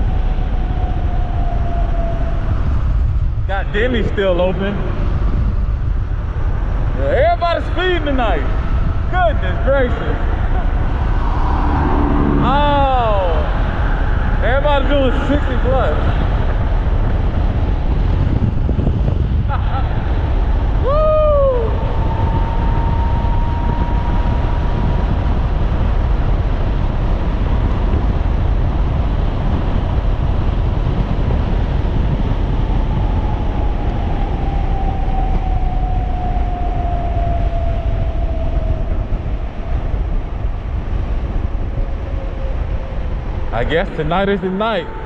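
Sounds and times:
road rumble: 0:00.0 - 0:45.0
wind on microphone: 0:00.0 - 0:45.0
short rising and falling call: 0:10.2 - 0:14.1.

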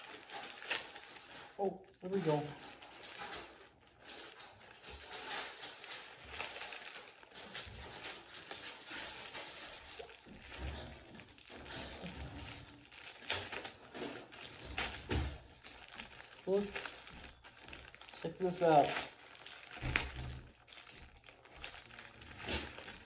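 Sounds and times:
plastic bag crinkling: 0:00.0 - 0:23.0.

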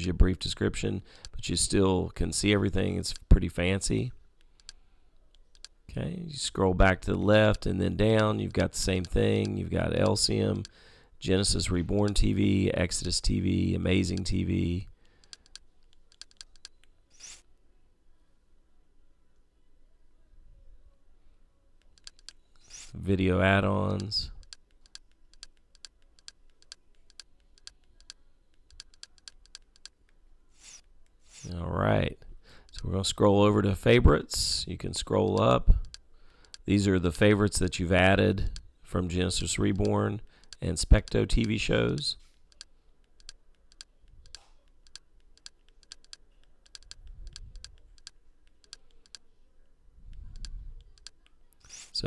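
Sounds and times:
buttons clicking: 0:21.8 - 0:23.0, 0:39.7 - 0:49.2.

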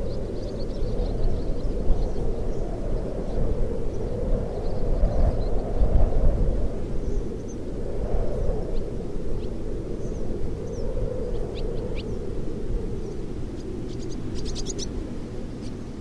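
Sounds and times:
wind whistling through shack: 0:00.0 - 0:16.0
swallows chirping: 0:10.0 - 0:12.2, 0:13.0 - 0:16.0.

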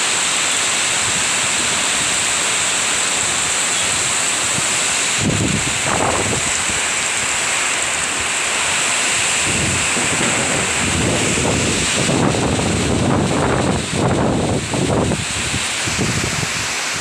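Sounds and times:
heavy rain hiss: 0:00.0 - 0:17.0
wind buffeting microphone: 0:04.5 - 0:07.4, 0:09.1 - 0:17.0.

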